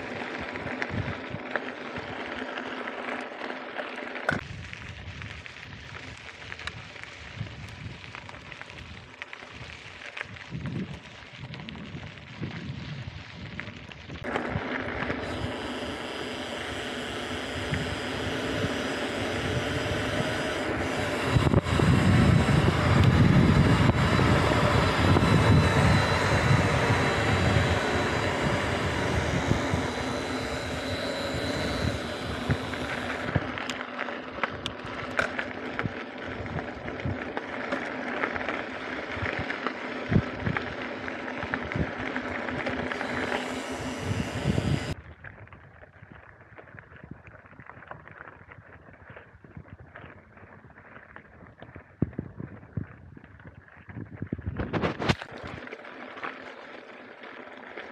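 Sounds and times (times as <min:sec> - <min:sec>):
tyres crunching on gravel: 0:00.0 - 0:45.5
bike rattling over stones: 0:00.0 - 0:57.9
wind rushing over microphone: 0:10.3 - 0:33.6, 0:42.6 - 0:45.6, 0:51.4 - 0:55.2.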